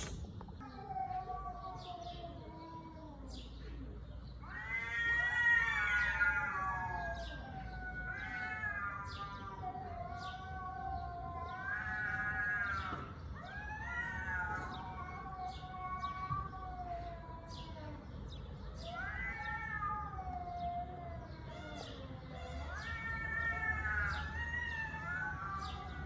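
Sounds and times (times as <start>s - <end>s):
cat yowling: 0.6s - 3.4s, 4.4s - 18.0s, 18.8s - 26.0s.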